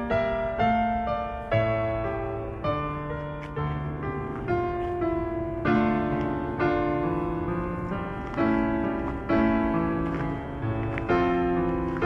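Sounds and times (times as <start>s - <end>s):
gentle piano music: 0.0s - 12.0s.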